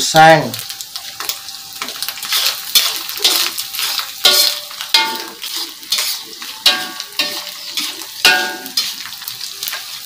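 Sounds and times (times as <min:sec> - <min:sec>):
fish frying in sizzling oil: 0:00.0 - 0:10.0
spatula scraping metal pan: 0:02.3 - 0:10.0.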